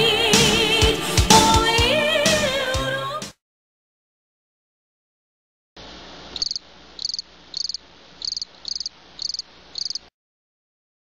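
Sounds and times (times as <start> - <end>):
cricket chirping: 6.3 - 10.1.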